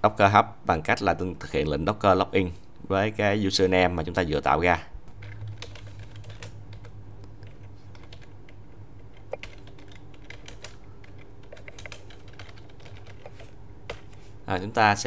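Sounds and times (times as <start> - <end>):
low steady hum: 0.0 - 15.0
keyboard keys clicking: 5.2 - 14.2.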